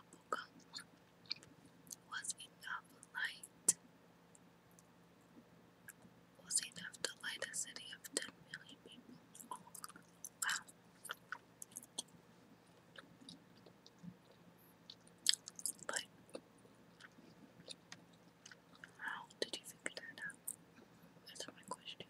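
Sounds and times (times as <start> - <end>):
faint low hum: 0.0 - 22.0
gum snaps: 9.4 - 12.1, 13.0 - 16.4
gum chewing mouth smacks: 11.1 - 12.1, 12.9 - 16.0.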